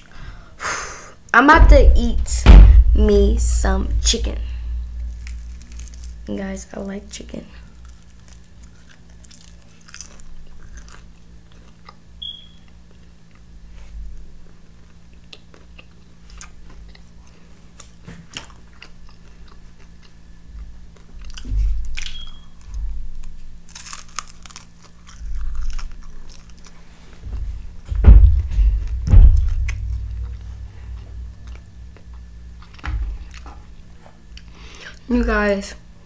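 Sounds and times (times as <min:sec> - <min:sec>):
heavy low thumps: 0:01.5 - 0:06.6, 0:27.2 - 0:34.4
crunching and chewing fried chicken: 0:05.1 - 0:06.3, 0:07.5 - 0:27.2.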